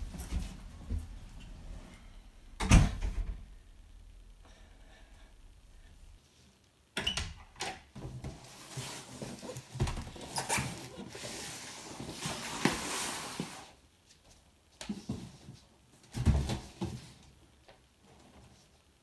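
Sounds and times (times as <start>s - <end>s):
cardboard scraping and rustling: 8.2s - 13.8s.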